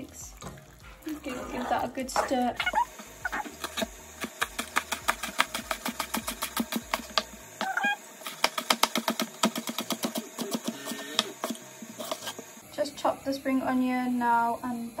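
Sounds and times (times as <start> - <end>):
knife chopping on cutting board: 3.6 - 7.3, 8.3 - 12.4.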